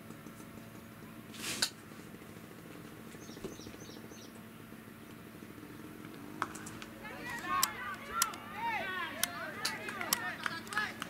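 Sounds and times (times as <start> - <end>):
low outdoor background: 0.0 - 11.0
bird chirping: 3.1 - 4.4.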